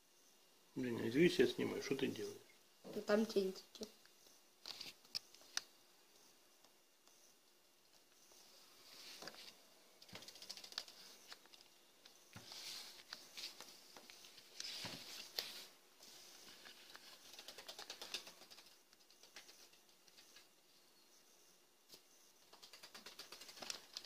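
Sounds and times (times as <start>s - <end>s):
small ticks: 3.7s - 8.5s, 9.2s - 15.5s, 16.4s - 24.0s.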